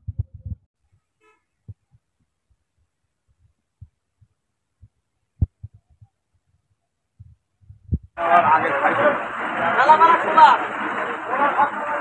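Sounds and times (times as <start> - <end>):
dull low thumps: 0.0 - 0.7, 1.5 - 6.2, 7.2 - 8.2
distant vehicle horn toot: 1.2 - 1.6.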